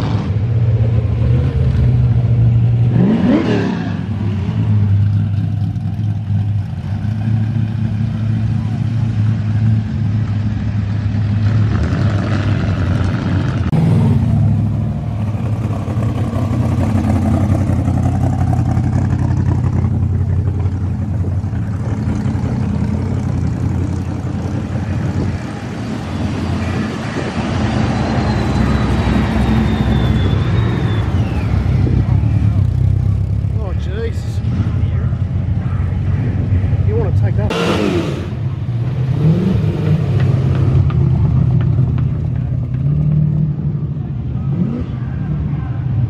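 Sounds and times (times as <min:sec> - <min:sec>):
car engines cruising past: 0:00.0 - 0:46.0
engine rev: 0:00.0 - 0:46.0
thin high whistle: 0:27.8 - 0:31.8.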